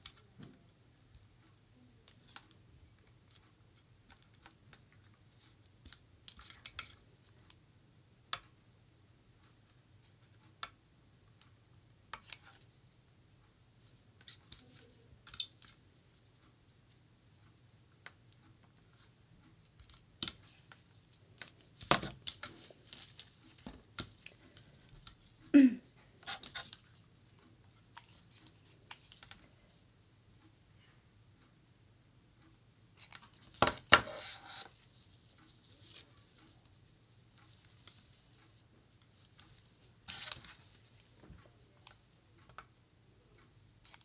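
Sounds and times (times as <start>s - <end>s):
lace ribbon rustling and crinkling: 18.9s - 25.5s, 27.8s - 29.9s, 33.0s - 42.6s.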